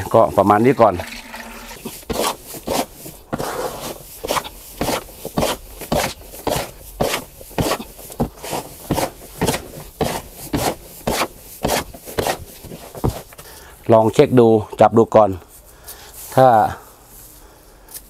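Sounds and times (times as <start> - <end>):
hand shovel scraping soil: 0.0 - 13.7.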